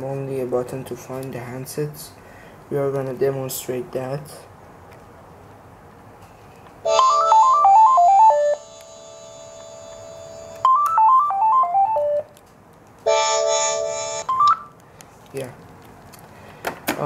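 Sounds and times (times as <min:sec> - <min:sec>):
cordless phone ringing tone: 0:06.9 - 0:12.1, 0:13.1 - 0:14.7.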